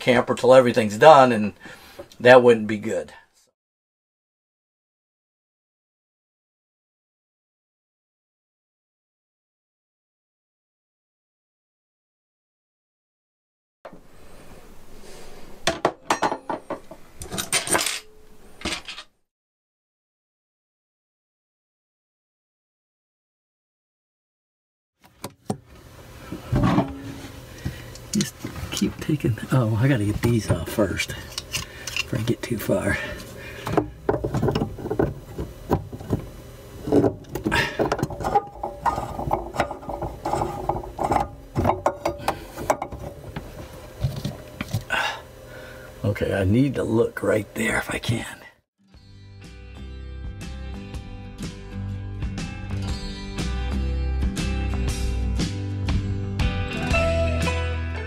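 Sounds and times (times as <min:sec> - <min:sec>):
metal fittings clinking: 0:30.9 - 0:32.3, 0:36.9 - 0:43.4
pliers clicking and scraping fittings: 0:31.0 - 0:32.3.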